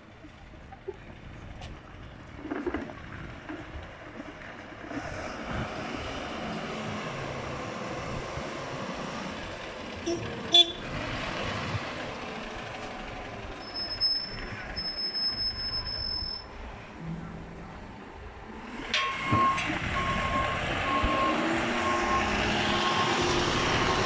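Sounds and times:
truck diesel engine: 0.0 - 24.0
horn toot: 10.0 - 10.9.

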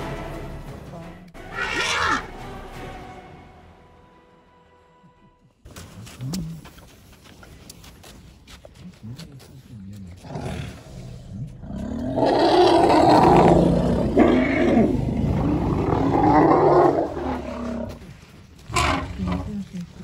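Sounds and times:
elephant calling: 1.4 - 2.3.

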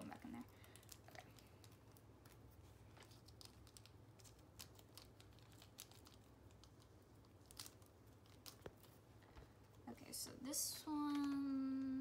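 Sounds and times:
paper cards ticking and rustling: 0.0 - 9.5
low room hum: 0.0 - 12.0.

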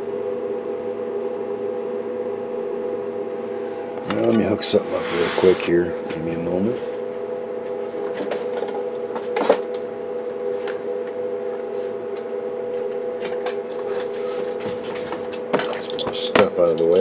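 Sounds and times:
steady electrical hum: 0.0 - 17.0.

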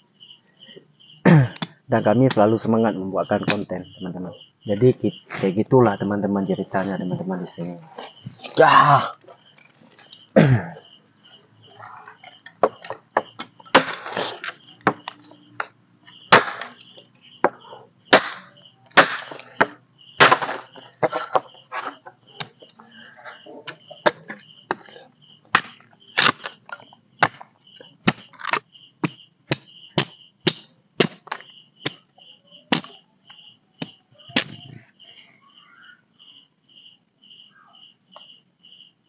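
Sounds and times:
chopping strikes on wood: 12.6 - 14.1, 16.3 - 16.8, 17.4 - 21.4, 25.5 - 26.5, 28.0 - 32.0, 32.7 - 32.9
faint high chirp: 32.3 - 36.0.

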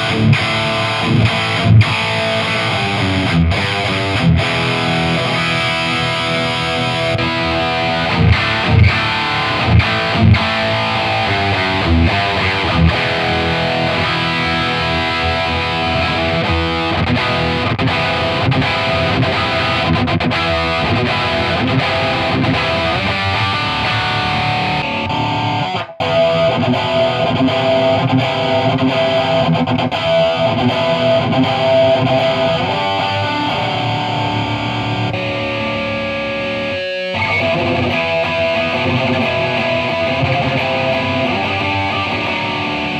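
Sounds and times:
distorted electric guitar riffing: 0.0 - 42.9.

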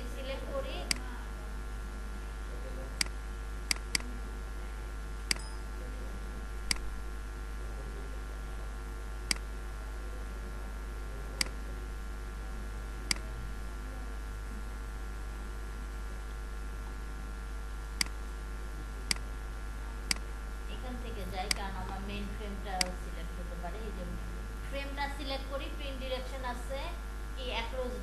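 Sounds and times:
low electrical hum: 0.0 - 28.0
computer mouse clicking: 3.0 - 4.1.

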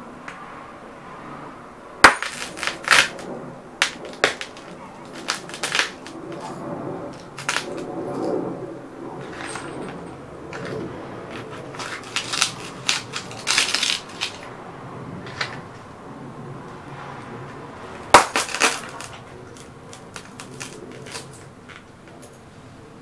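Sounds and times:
boots crunching glass tubes: 2.0 - 3.2, 3.8 - 7.9, 9.2 - 14.5, 18.1 - 21.5
broken glass crackling: 2.0 - 7.9, 9.2 - 14.5, 18.1 - 21.6.

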